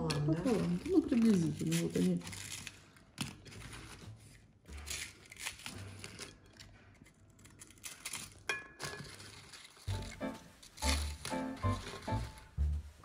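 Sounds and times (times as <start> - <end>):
knife cutting crackling pastry: 0.4 - 4.0, 4.7 - 10.1.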